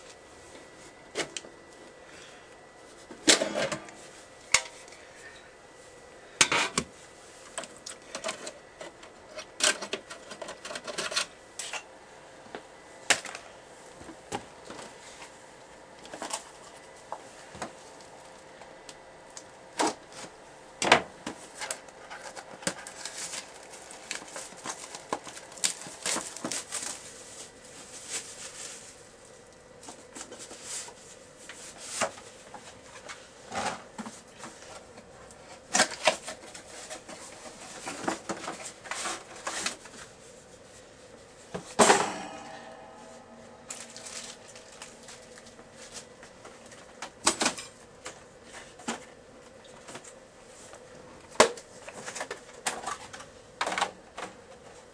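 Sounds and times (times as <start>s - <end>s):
computer hardware being handled: 7.5s - 11.8s, 21.3s - 27.0s, 41.5s - 48.2s
ringing knock: 41.9s - 43.5s.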